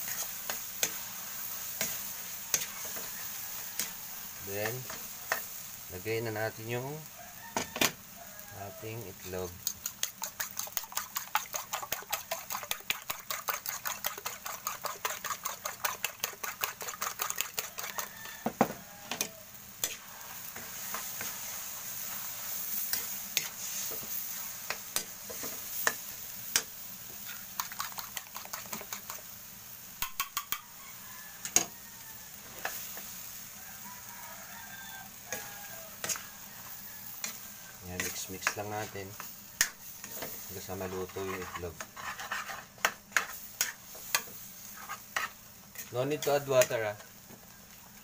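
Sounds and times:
food sizzling: 0.0s - 48.0s
spatula clicking against wok: 30.0s - 30.6s.

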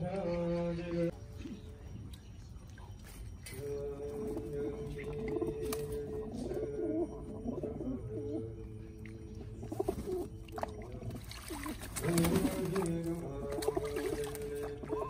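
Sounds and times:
pigeons cooing: 2.8s - 15.0s
pigeons splashing and fluttering: 3.0s - 6.7s, 9.5s - 15.0s
temple chanting: 3.5s - 10.2s, 12.0s - 15.0s.

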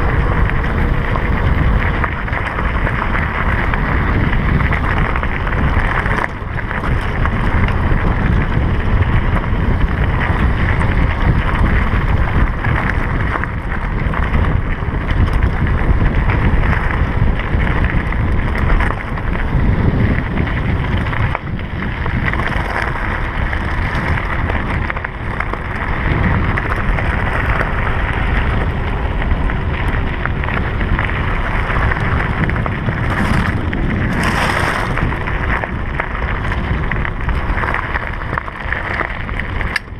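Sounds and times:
bike tyres rolling on gravel: 0.0s - 39.9s
wind on microphone: 0.0s - 39.9s.

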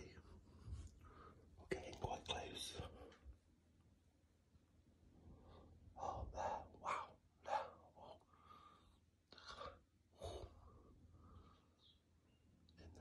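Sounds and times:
man whispering: 0.0s - 0.4s, 1.6s - 3.4s, 6.0s - 8.3s, 12.7s - 13.0s.

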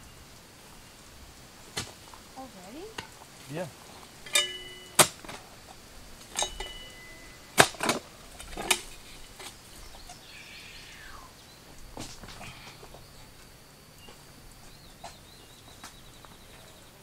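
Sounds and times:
digger blades clanking on rock: 4.2s - 5.5s, 6.2s - 10.2s.

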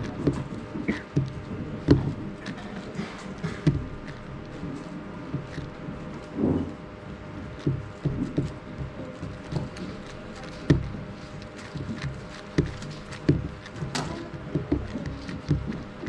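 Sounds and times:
cube knocking on mat: 0.0s - 4.3s, 7.6s - 16.0s
speed cube clicking turns: 0.0s - 4.6s, 7.6s - 16.0s.

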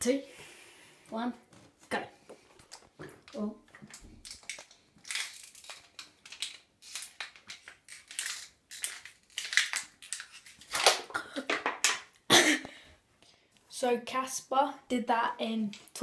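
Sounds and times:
plastic water bottle crackling: 2.6s - 12.0s.

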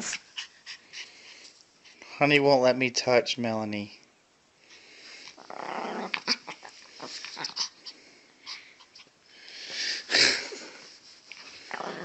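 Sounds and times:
dog growling and snarling: 5.3s - 7.9s, 11.6s - 12.0s.

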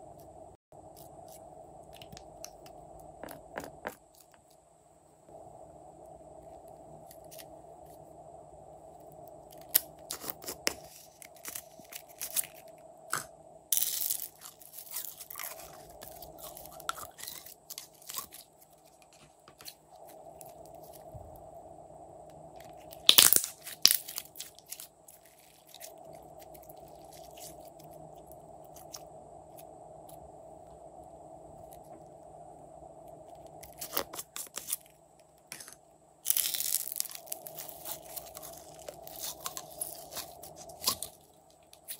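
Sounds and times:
faint steady hum: 0.0s - 41.9s.

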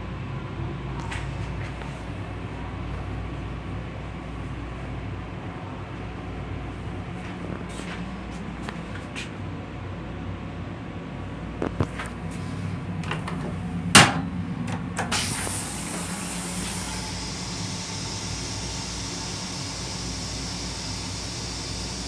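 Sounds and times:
train rumble and hum: 0.0s - 22.0s
toilet flushing with spraying hiss: 15.0s - 22.0s.

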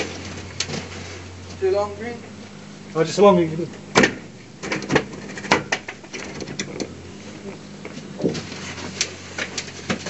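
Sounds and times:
low machine hum: 0.0s - 10.0s
sharp clicks and knocks: 3.9s - 7.0s.

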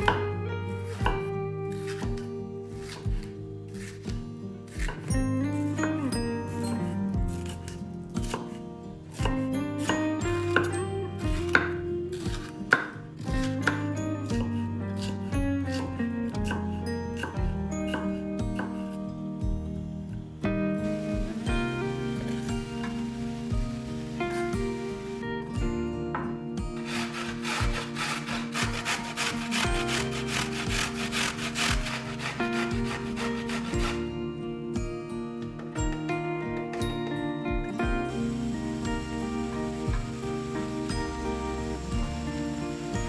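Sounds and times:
background music: 0.0s - 43.0s
knife chopping on wooden board: 4.7s - 5.1s, 7.4s - 8.6s, 11.4s - 13.0s.

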